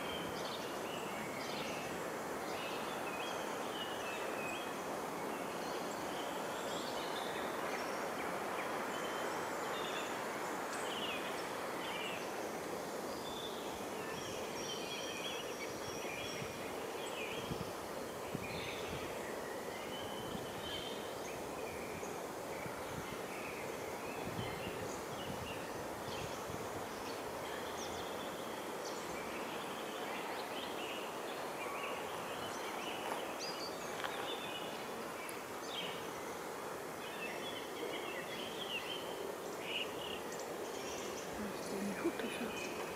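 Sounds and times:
small birds chirping: 0:13.1 - 0:36.4, 0:37.0 - 0:42.9.

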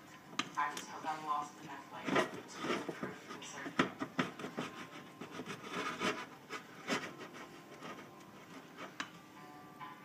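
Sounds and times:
spoon scraping batter in glass bowl: 0:02.0 - 0:09.1.

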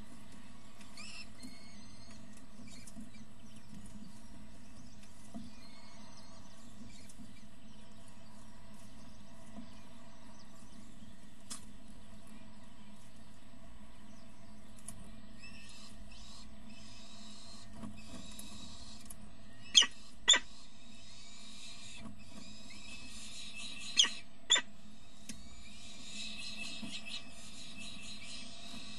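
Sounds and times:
chicks squeaking: 0:15.9 - 0:28.9.

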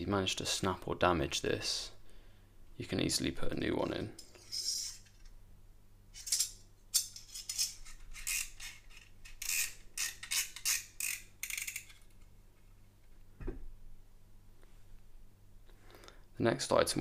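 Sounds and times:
metallic clicks and scrapes of knife blade: 0:06.2 - 0:12.1.

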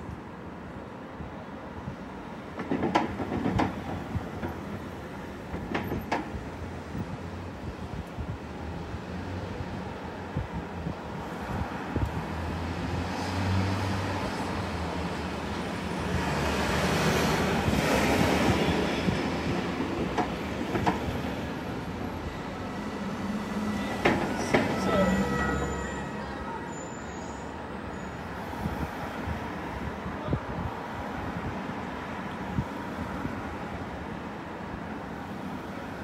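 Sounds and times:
city traffic rumble: 0:00.0 - 0:36.0
brief high squeal: 0:24.6 - 0:28.2.

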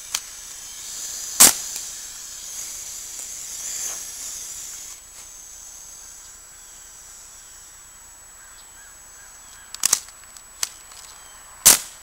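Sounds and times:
high hiss of air: 0:00.0 - 0:08.0
air gun firing pop: 0:01.4 - 0:01.9, 0:11.7 - 0:12.0.

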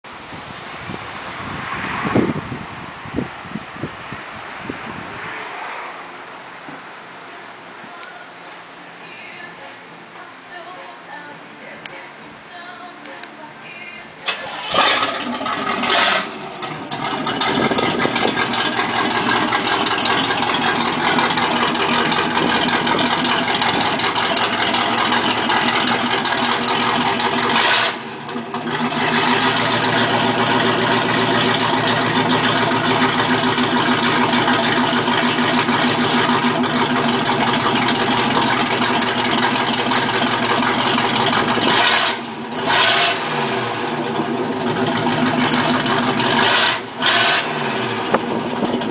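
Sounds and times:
loud car engine idling: 0:14.2 - 0:48.9
engine revving bursts: 0:14.3 - 0:48.9.

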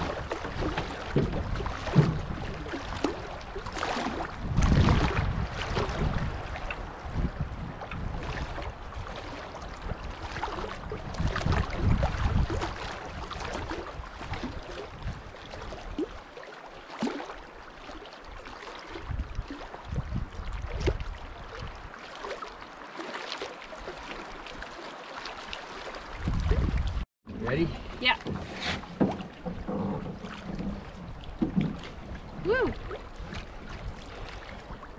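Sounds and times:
wind gusting on microphone: 0:04.2 - 0:15.4, 0:19.0 - 0:21.9, 0:26.2 - 0:27.0.

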